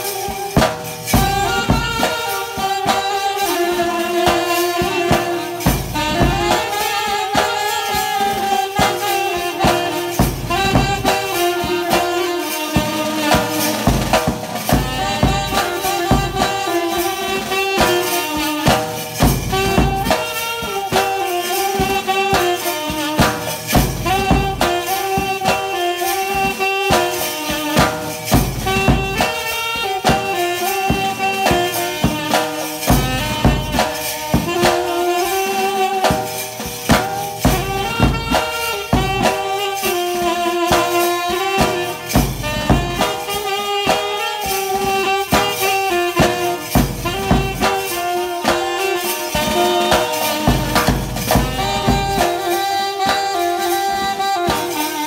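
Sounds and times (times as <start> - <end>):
jingling percussion: 0.0 - 55.0
reed wind instrument melody: 0.0 - 55.0
snare and bass drum beats: 0.0 - 55.0.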